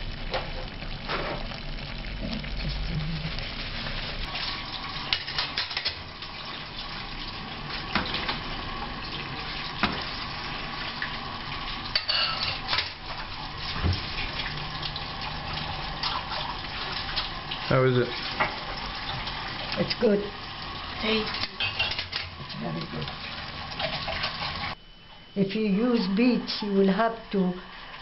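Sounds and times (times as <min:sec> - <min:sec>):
pan sizzling: 0:00.0 - 0:24.8, 0:25.7 - 0:28.0.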